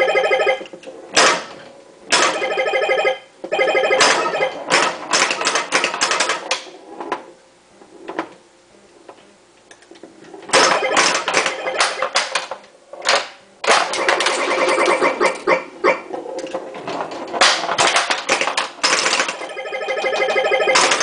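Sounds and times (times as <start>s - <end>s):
electronic game tones: 0.0s - 0.7s, 2.2s - 4.6s, 10.6s - 12.2s, 19.3s - 21.0s
pinball clacks: 0.0s - 6.7s, 10.5s - 15.5s, 16.4s - 21.0s.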